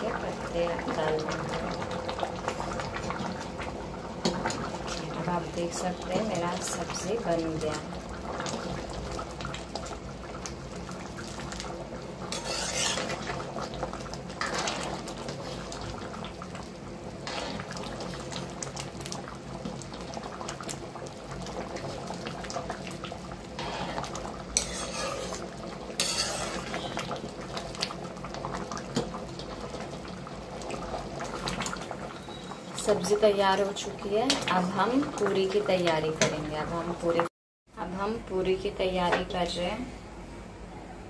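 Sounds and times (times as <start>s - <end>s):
ladle stirring in metal pan: 12.2s - 16.0s, 17.2s - 18.8s, 23.5s - 27.2s.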